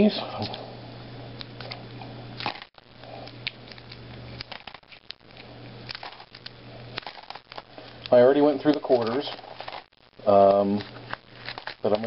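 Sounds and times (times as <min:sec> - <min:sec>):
plastic wrapper crinkling: 0:02.4 - 0:12.0.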